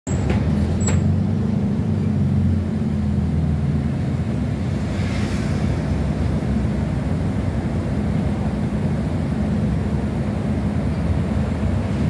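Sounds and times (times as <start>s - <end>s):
bus engine hum: 0.1s - 12.0s
bus air hiss: 4.5s - 7.3s.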